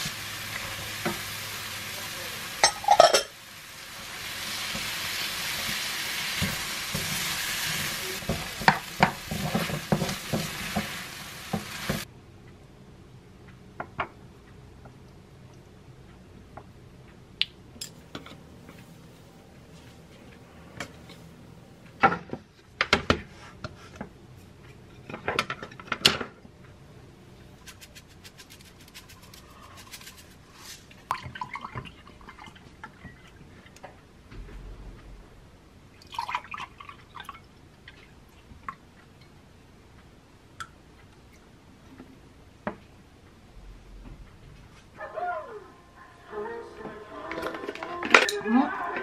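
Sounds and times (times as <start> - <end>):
glass and dishes clinking: 2.6 - 3.3.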